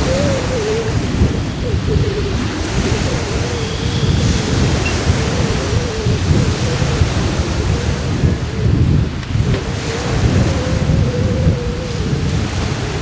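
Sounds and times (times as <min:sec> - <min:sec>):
faint wavering tone: 0:00.0 - 0:08.6
wind buffeting microphone: 0:00.0 - 0:13.0.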